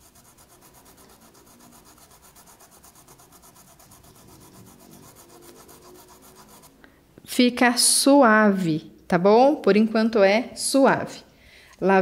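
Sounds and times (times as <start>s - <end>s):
paintbrush rubbing on cloth: 0.0s - 6.8s.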